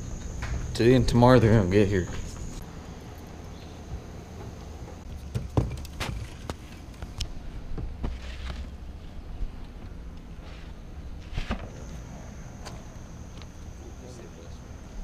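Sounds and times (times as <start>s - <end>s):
high insect drone: 0.0s - 5.1s, 11.6s - 15.0s.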